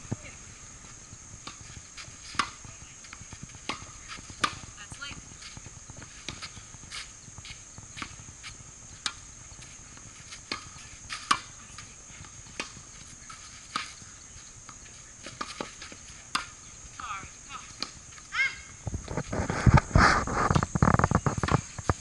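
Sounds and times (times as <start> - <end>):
high-pitched hiss: 0.0 - 22.0
tennis balls struck and bouncing: 1.4 - 7.1, 9.0 - 17.1.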